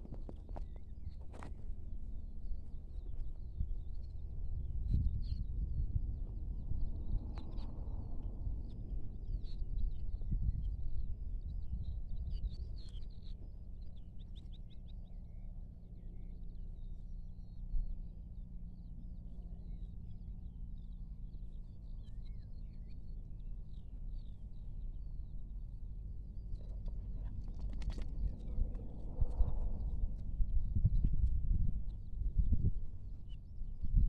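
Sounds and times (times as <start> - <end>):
small birds chirping: 0.0 - 33.7
low background rumble: 0.0 - 34.0.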